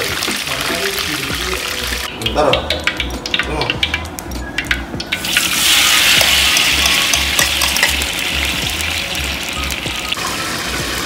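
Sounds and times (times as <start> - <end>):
paste sizzling in hot oil: 0.0 - 2.1, 5.1 - 11.0.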